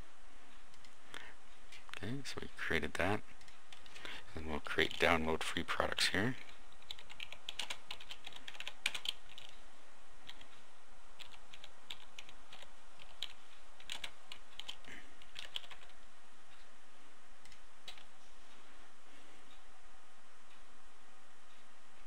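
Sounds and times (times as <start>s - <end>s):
typing on computer keyboard: 6.4s - 9.5s, 11.2s - 16.0s.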